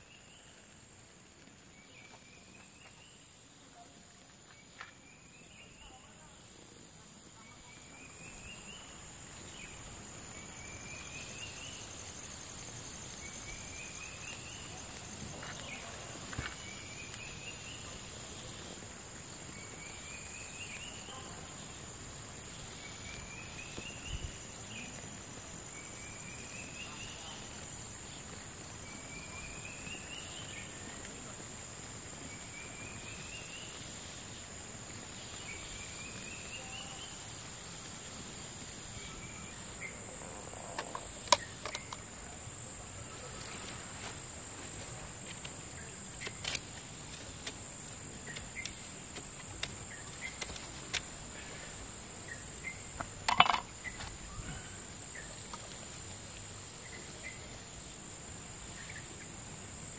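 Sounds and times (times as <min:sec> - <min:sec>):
sharp clicks and knocks: 0:53.0 - 0:53.7.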